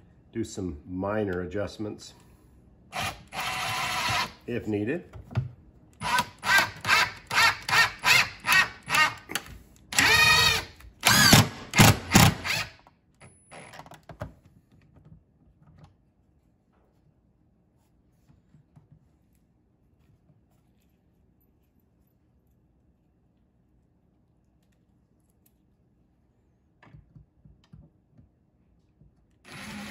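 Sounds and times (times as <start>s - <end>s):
cordless drill driving a screw: 2.9s - 4.4s, 6.0s - 9.2s, 9.9s - 12.8s, 29.5s - 29.9s.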